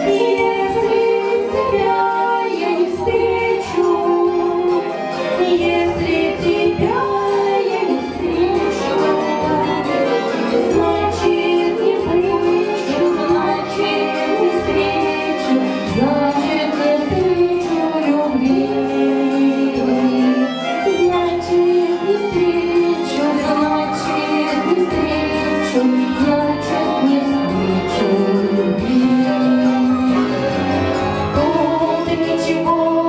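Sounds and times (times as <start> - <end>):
instrumental accompaniment: 0.0 - 33.0
women singing a duet: 0.0 - 33.0.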